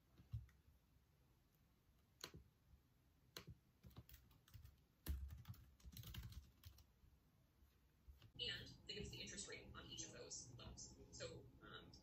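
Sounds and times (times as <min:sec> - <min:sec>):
laptop keyboard keystrokes: 0:02.1 - 0:02.5, 0:03.3 - 0:06.9.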